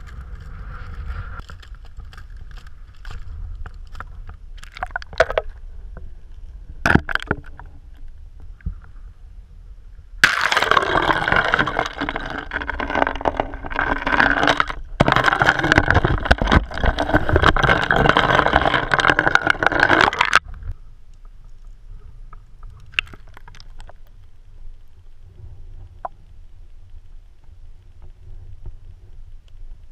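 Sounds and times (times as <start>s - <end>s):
muffled underwater rumble: 20.4s - 29.9s.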